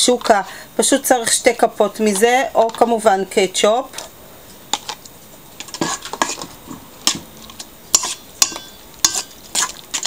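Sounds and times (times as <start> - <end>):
fork clinking against steel bowl: 7.9 - 9.4.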